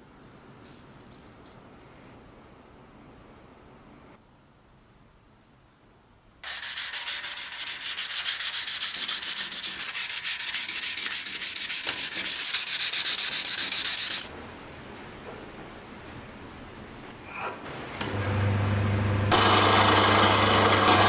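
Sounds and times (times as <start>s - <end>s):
sandpaper rasping on wood: 6.4s - 14.3s.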